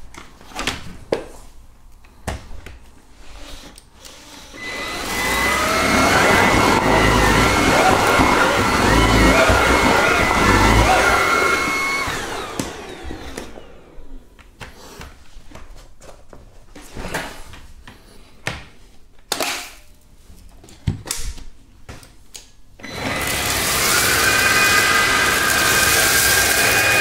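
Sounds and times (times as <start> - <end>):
vacuum motor winding down: 4.6 - 14.2, 22.8 - 27.0
vacuum running with high whine: 4.6 - 14.3, 22.8 - 27.0.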